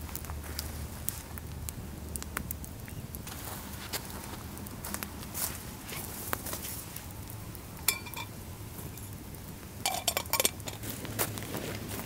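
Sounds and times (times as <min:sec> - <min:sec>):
campfire crackling: 0:00.0 - 0:12.0
metal clinking: 0:07.9 - 0:08.3.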